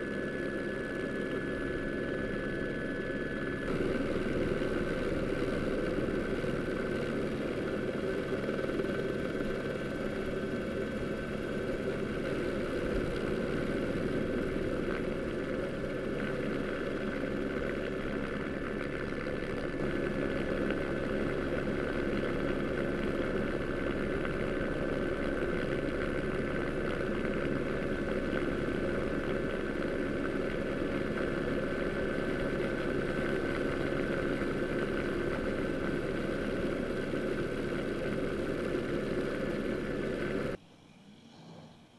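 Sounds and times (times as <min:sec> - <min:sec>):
engine drone: 0:00.0 - 0:41.9
thin high whine: 0:00.0 - 0:41.9.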